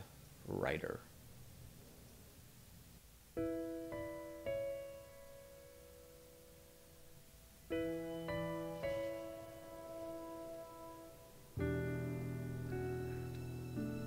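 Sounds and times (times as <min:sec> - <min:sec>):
slow piano chords: 0:03.3 - 0:14.0.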